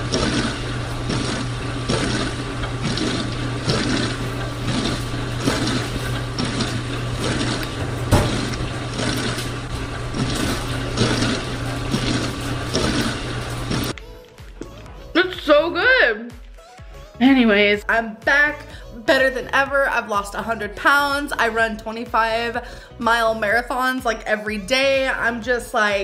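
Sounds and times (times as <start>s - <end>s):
dishwasher humming and churning: 0.0s - 14.0s.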